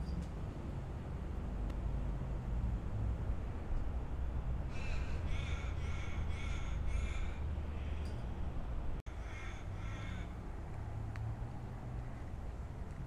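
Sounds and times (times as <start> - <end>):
crow cawing: 4.7 - 8.1, 9.1 - 10.4.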